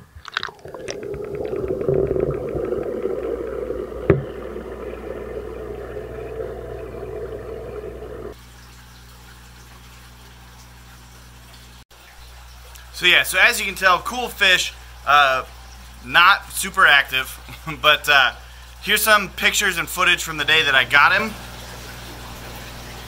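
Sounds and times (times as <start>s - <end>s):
aquarium water bubbling: 0.0s - 16.9s, 17.9s - 23.0s
steady hum: 0.5s - 8.4s.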